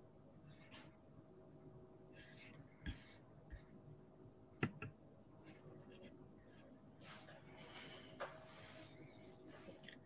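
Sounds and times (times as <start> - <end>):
soft hisses: 7.0 - 9.8.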